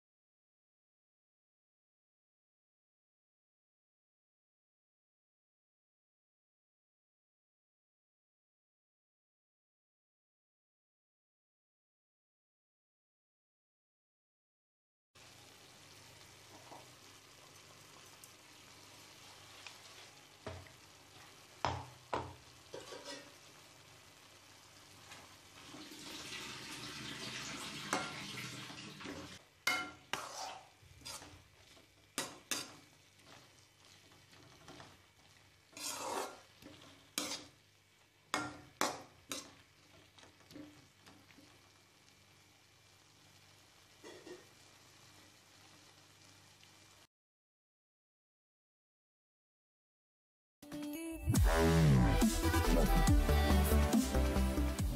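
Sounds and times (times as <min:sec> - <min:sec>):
food sizzling in a frying pan: 0:15.2 - 0:47.1.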